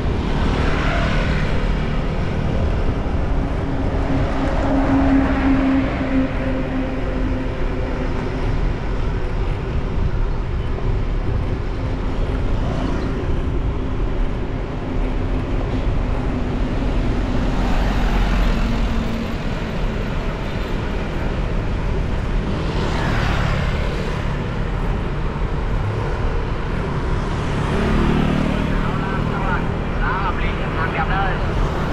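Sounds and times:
surrounding traffic noise: 0.0s - 31.9s.

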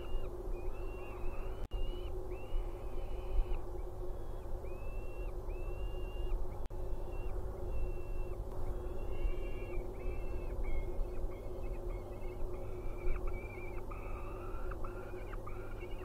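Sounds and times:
falcon chicks wailing: 4.2s - 16.0s.

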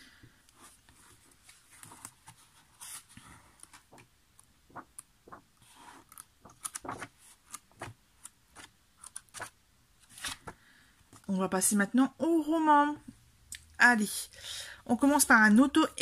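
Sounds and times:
book pages turning: 0.5s - 11.3s.

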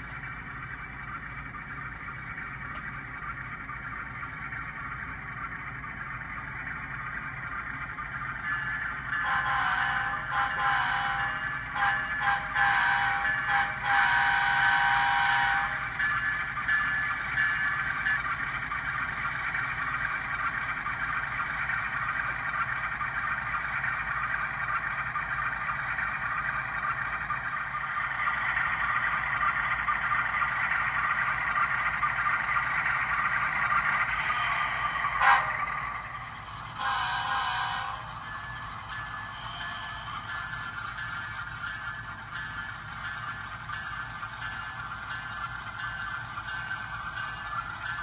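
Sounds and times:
model locomotive engine sound: 0.0s - 48.0s
locomotive horn: 9.2s - 15.8s, 35.2s - 35.7s, 36.8s - 38.1s.

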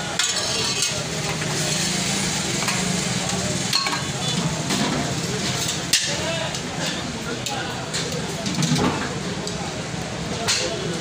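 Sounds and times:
spoon clinking on pots: 3.7s - 4.1s.

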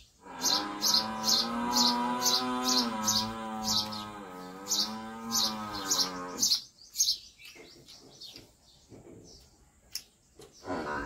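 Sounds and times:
small bird chirping: 0.0s - 10.9s
cattle lowing: 0.2s - 6.6s.

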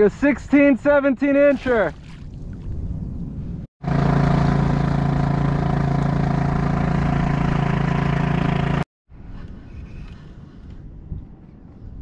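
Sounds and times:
boat motor humming: 3.8s - 8.9s.

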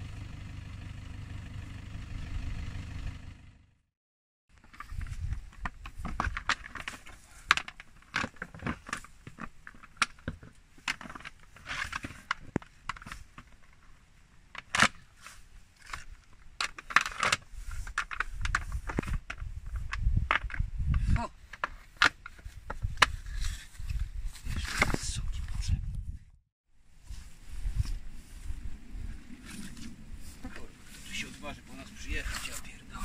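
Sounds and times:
low rumble: 0.0s - 3.8s.

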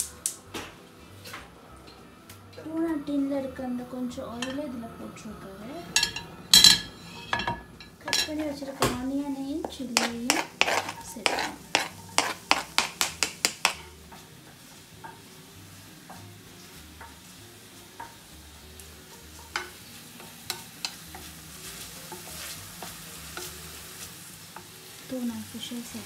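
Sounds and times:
onions sizzling in a pan: 0.0s - 26.0s
wooden spoon knocking a pan: 7.4s - 13.9s
knife scraping a cutting board: 10.0s - 13.0s.

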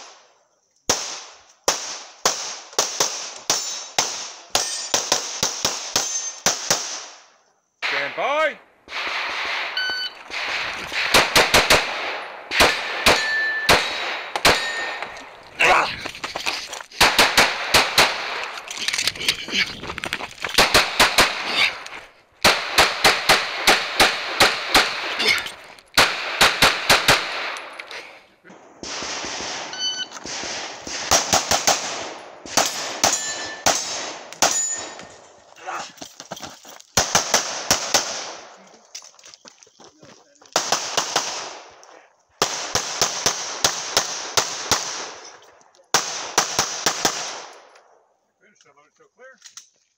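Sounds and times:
pistol shots: 0.9s - 7.2s, 8.9s - 15.2s, 17.0s - 18.6s, 20.6s - 21.8s, 22.4s - 25.4s, 26.0s - 27.7s, 28.5s - 35.0s, 37.0s - 38.5s, 40.6s - 41.8s, 42.4s - 45.3s, 45.9s - 47.7s.

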